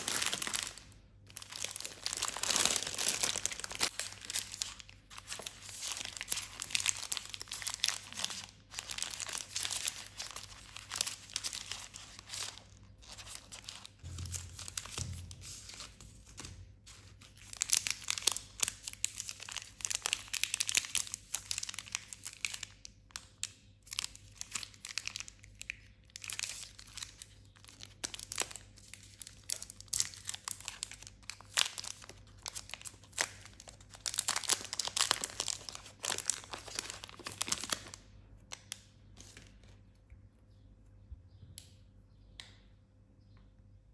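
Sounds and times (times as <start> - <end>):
wrapper tearing: 0.0 - 15.0, 23.9 - 38.0
wrapper crinkling: 0.0 - 16.4, 17.0 - 39.6.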